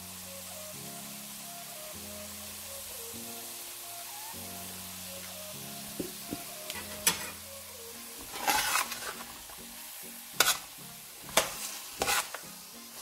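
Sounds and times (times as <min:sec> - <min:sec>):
vegetables sizzling in a frying pan: 0:00.0 - 0:13.0
metal spatula scraping a pan: 0:06.7 - 0:07.5, 0:08.2 - 0:09.6, 0:10.3 - 0:13.0.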